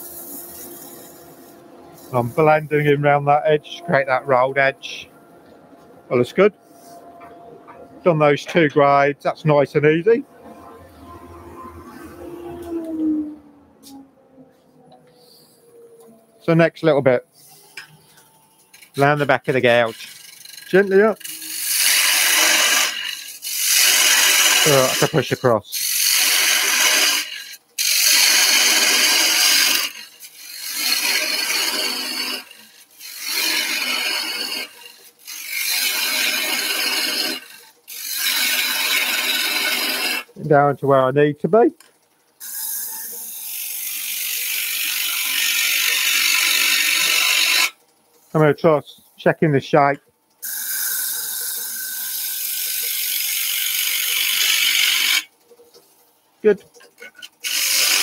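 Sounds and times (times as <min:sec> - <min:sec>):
gouge scraping wood on lathe: 0:00.0 - 0:01.4, 0:18.7 - 0:40.3, 0:42.4 - 0:47.8, 0:50.5 - 0:55.3, 0:57.0 - 0:58.0.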